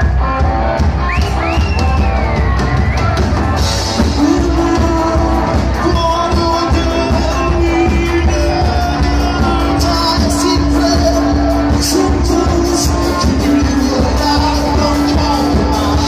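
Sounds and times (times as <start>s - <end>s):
drum kit: 0.0s - 16.0s
electric guitar: 0.0s - 16.0s
person singing into microphone: 3.6s - 16.0s.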